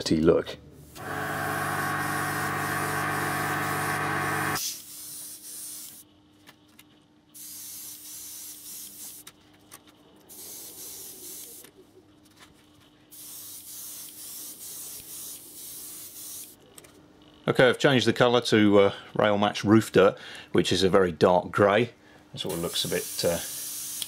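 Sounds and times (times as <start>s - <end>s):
steady humming hiss: 0.0s - 9.4s, 21.6s - 24.0s
airbrush spraying hiss: 0.9s - 6.0s, 7.4s - 9.2s, 10.3s - 11.7s, 13.1s - 16.6s, 22.5s - 24.0s.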